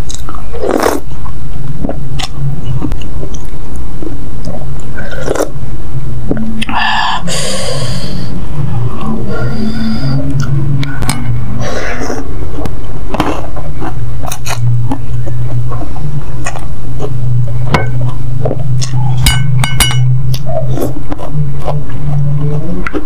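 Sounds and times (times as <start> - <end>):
slurping and chewing noodles: 0.0 - 5.6, 11.6 - 17.2, 20.3 - 23.0
low hum: 0.0 - 23.0
wet mouth clicks: 18.5 - 19.1
spoon clinking on ceramic bowl: 19.2 - 20.1.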